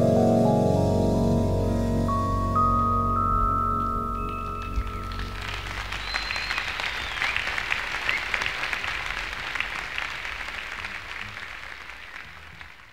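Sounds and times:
song final notes: 0.0s - 6.5s
audience whistling: 3.5s - 9.8s
audience applauding: 3.8s - 12.9s.

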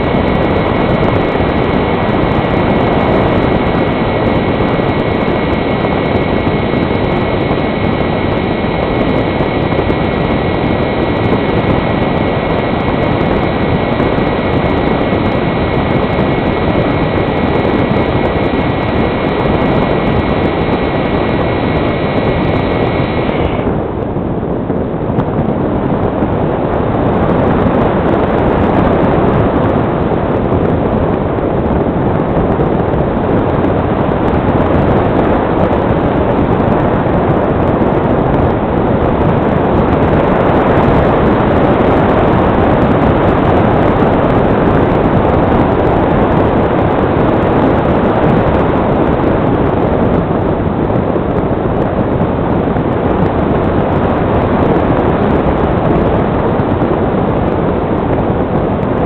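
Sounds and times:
airflow over microphone: 0.0s - 59.0s.

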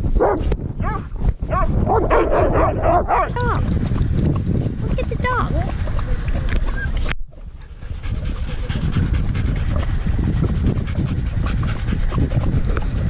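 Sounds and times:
dog panting: 3.1s - 13.0s.

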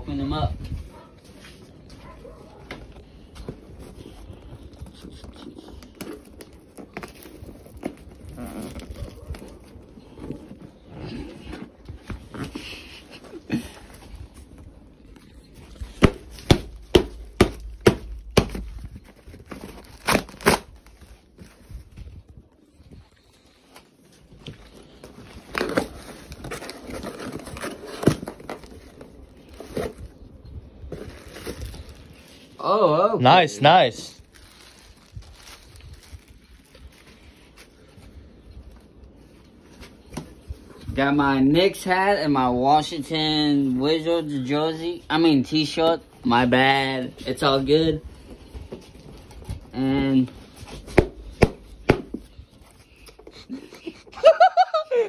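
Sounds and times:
packing paper and box rustling: 0.5s - 32.6s, 33.3s - 41.7s
cardboard and tape ripping: 4.8s - 13.6s, 15.8s - 21.8s, 24.9s - 30.2s.

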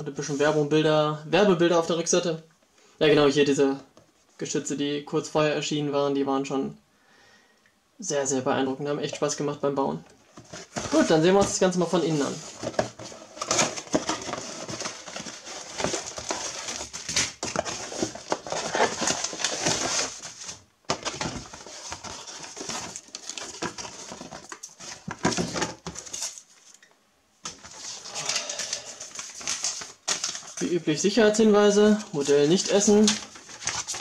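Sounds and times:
cardboard and paper rustling: 10.2s - 30.7s, 31.5s - 34.0s.

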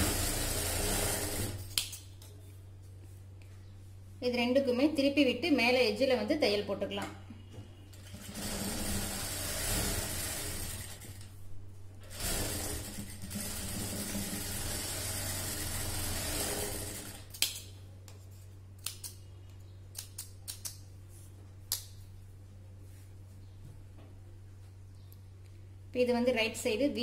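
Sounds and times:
sewing machine running: 0.0s - 1.7s, 7.9s - 11.2s, 12.0s - 17.3s
scissors snipping threads: 18.8s - 19.2s, 19.9s - 20.8s.

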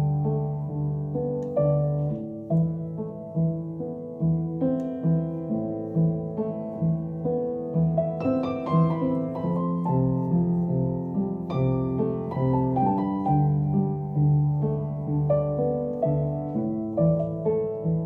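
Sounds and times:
slow piano music: 0.0s - 18.0s.

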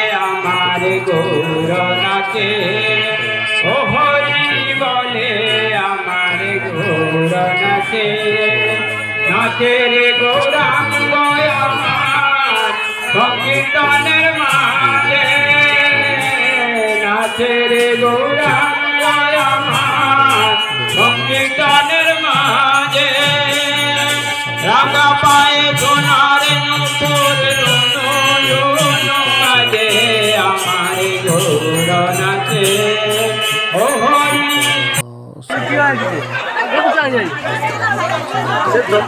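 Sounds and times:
voices singing a chant: 0.0s - 17.0s.

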